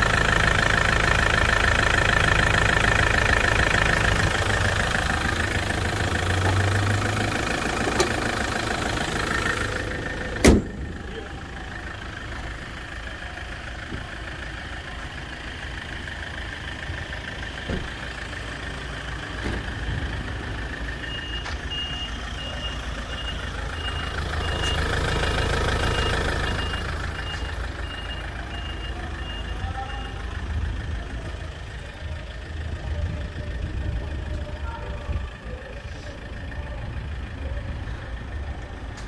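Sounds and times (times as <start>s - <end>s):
low engine rumble: 0.0s - 39.0s
reversing alarm beeping: 21.0s - 30.3s.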